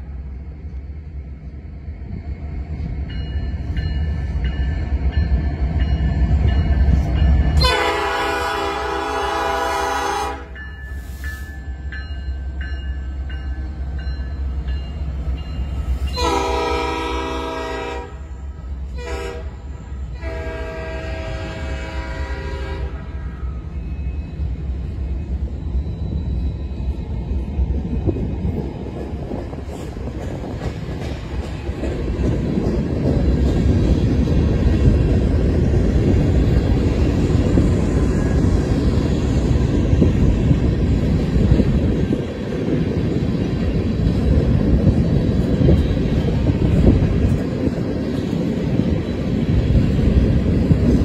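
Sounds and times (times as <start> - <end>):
diesel locomotives rumbling: 0.0 - 51.0
train horn blasts: 7.6 - 10.6, 16.1 - 23.1.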